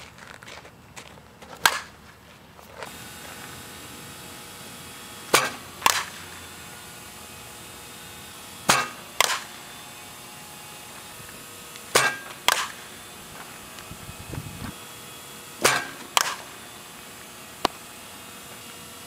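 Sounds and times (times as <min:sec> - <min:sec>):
bat cracking against softball: 0:01.5 - 0:02.2, 0:05.2 - 0:07.3, 0:08.6 - 0:13.8, 0:15.6 - 0:18.9
ball landing smack: 0:05.4 - 0:06.2, 0:11.9 - 0:12.8, 0:15.6 - 0:16.4.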